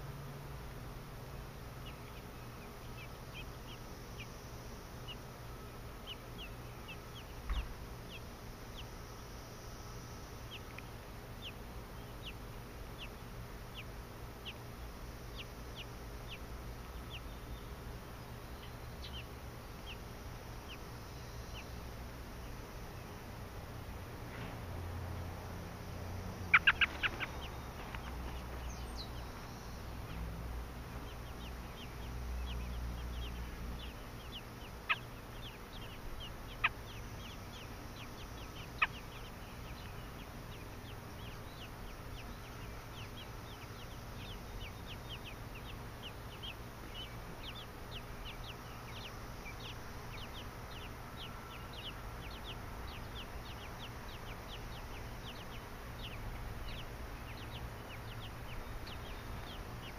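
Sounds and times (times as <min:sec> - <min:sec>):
nestlings peeping: 0:00.0 - 0:59.9
sharp bird chirps: 0:26.4 - 0:30.4, 0:31.0 - 0:59.9.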